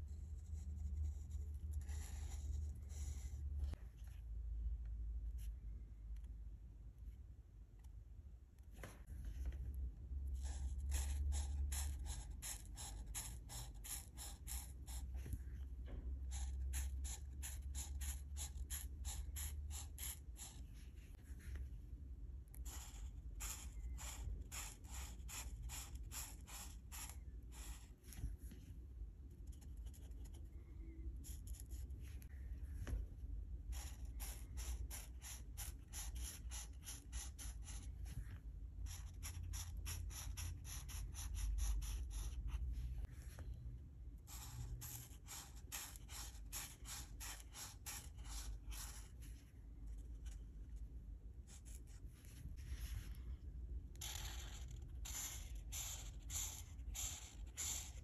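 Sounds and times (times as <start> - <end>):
marker scratching on paper: 0.0 - 3.8, 10.3 - 21.6, 22.5 - 28.6, 31.2 - 32.2, 33.7 - 43.4, 44.2 - 50.4, 51.4 - 53.2, 53.9 - 58.0
low steady hum: 0.0 - 58.0.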